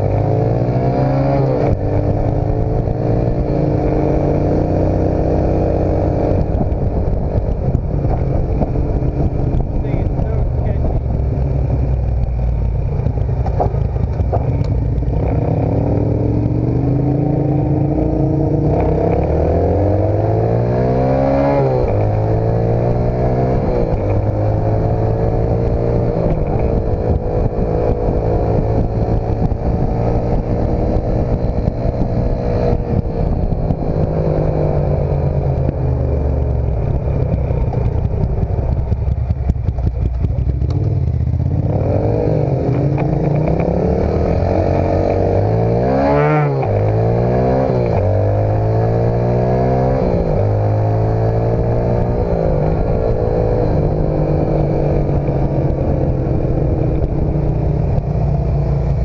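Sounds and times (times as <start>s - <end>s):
dirt bike engine revving: 40.8s - 57.4s.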